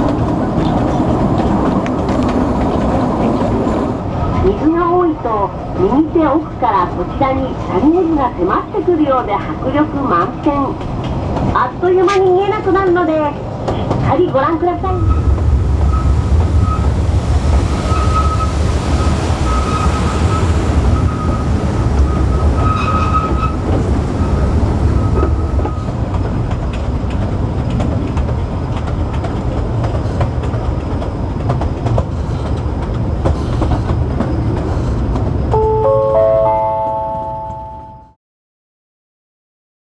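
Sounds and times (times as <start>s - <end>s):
train wheels rumbling on track: 0.0s - 37.7s
high wheel squeal: 17.7s - 25.9s.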